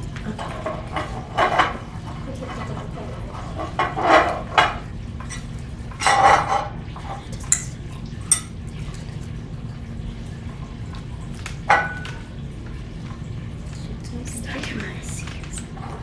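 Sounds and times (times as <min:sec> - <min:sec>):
steady low hum: 0:06.8 - 0:11.5
glass beakers clinking: 0:07.5 - 0:08.6.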